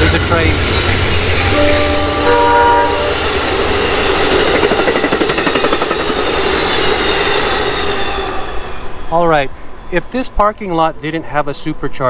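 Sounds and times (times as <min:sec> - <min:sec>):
train rumbling past: 0:00.0 - 0:12.0
train horn chord: 0:01.4 - 0:03.2
wheels clattering on rails: 0:03.2 - 0:07.8.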